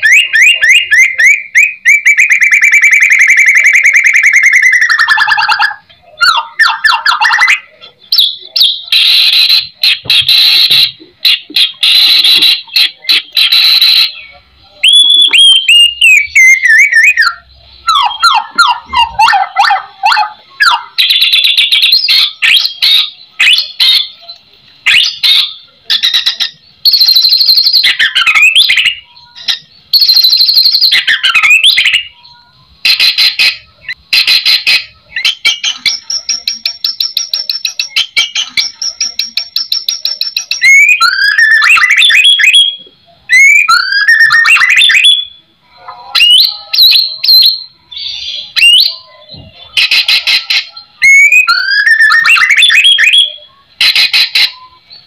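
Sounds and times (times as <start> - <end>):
songbird whistling and trilling: 0.0 - 55.0.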